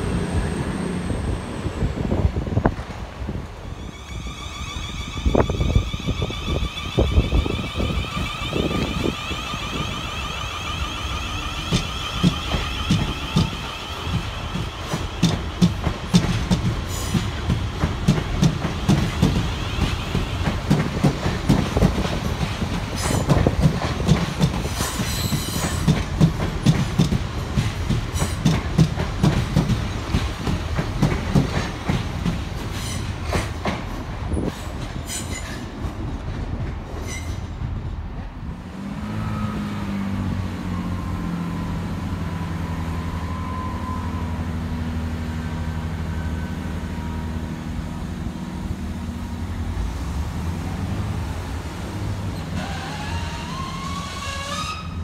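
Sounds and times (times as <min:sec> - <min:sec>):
high wheel squeals: 0:03.6 - 0:15.5, 0:39.0 - 0:40.0, 0:42.9 - 0:44.6, 0:52.3 - 0:55.0
traction motor whine: 0:05.9 - 0:14.9
train wheels clacking over rail joints: 0:07.5 - 0:37.8.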